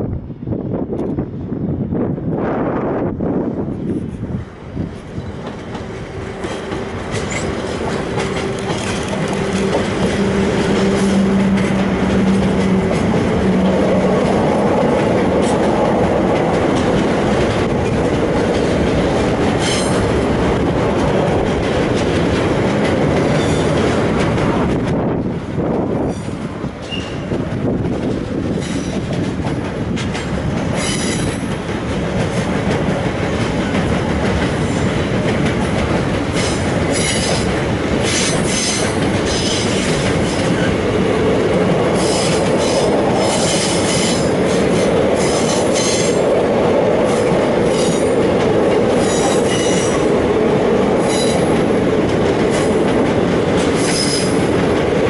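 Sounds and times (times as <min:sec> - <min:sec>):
electric locomotive hum: 0:00.0 - 0:55.0
freight wagons rumbling: 0:04.8 - 0:55.0
wheels clicking over rail joints: 0:05.2 - 0:25.3.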